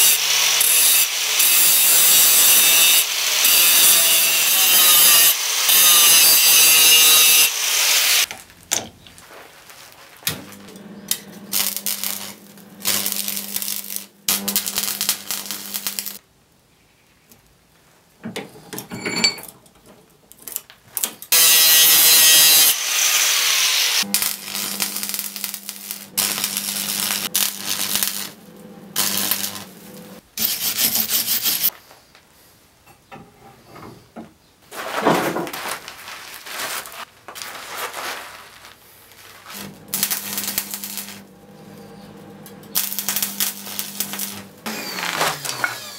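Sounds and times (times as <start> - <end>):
arc welder crackling: 0.0 - 16.2, 21.3 - 31.7, 38.6 - 45.9.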